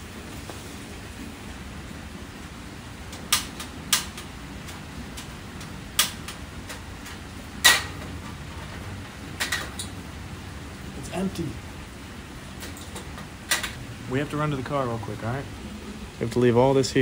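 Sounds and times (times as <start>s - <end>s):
steady rain: 0.0s - 17.0s
stove igniter clicking: 3.1s - 8.0s.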